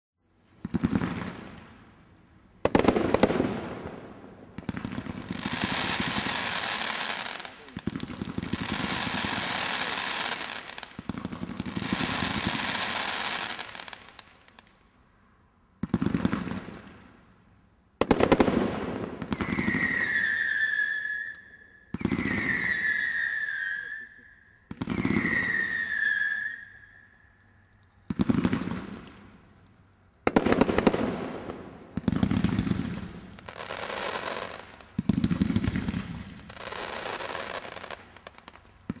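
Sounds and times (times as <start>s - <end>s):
falling firework whistles: 0.4s - 14.9s, 18.0s - 39.0s
firework cake firing rapid shots: 30.3s - 32.9s.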